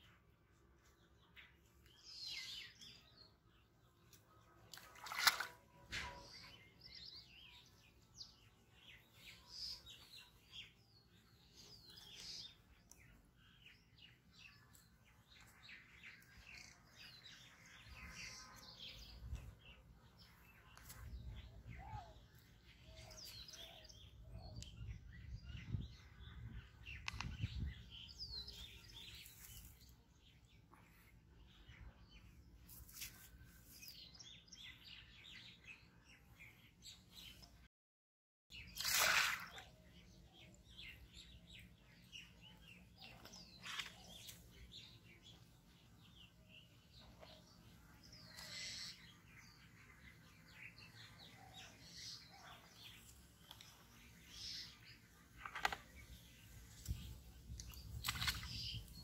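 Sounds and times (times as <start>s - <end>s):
small birds chirping: 0.0s - 37.7s, 38.5s - 59.0s.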